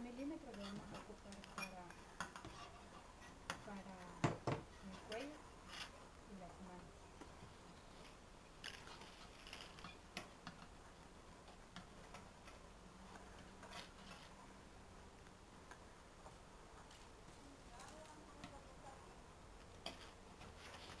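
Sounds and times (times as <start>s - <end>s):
thin wire clicking and scraping: 0.2s - 4.0s, 8.0s - 10.8s, 19.7s - 21.0s.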